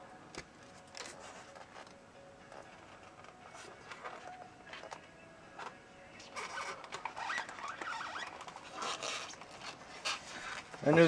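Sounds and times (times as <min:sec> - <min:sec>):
foam tray squeaking and rubbing: 0:06.2 - 0:10.7.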